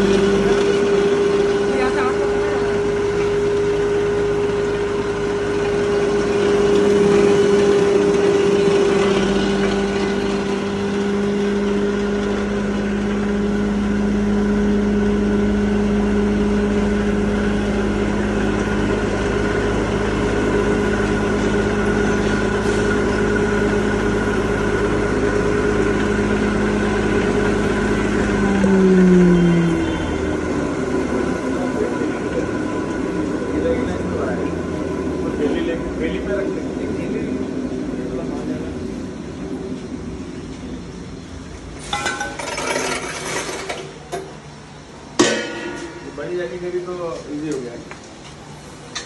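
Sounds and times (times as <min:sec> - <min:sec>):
grinding machine whining: 0:00.0 - 0:39.9
low hum: 0:09.9 - 0:33.6.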